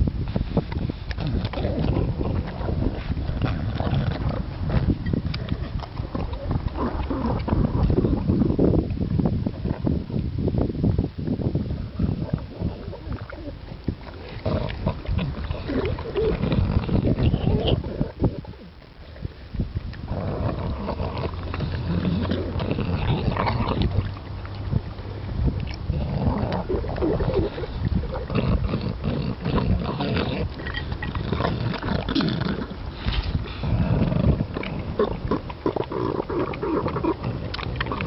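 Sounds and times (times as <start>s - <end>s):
dog crunching kibble: 1.1s - 8.0s, 20.0s - 24.8s, 25.6s - 38.0s.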